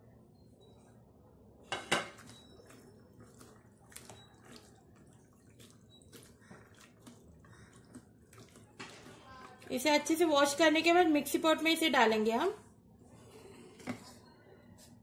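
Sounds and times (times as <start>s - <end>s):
water splashing in a bowl: 2.3s - 10.3s.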